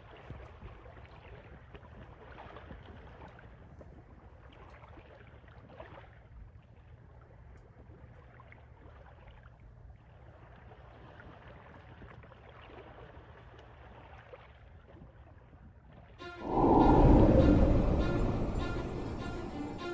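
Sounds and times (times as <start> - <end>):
low wind rumble: 16.2 - 19.9.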